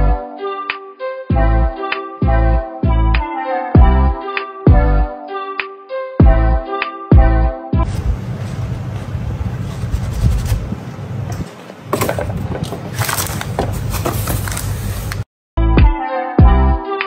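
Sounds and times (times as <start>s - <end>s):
background music: 0.0s - 7.9s, 15.6s - 17.0s
handling and rustling noise: 7.9s - 15.2s.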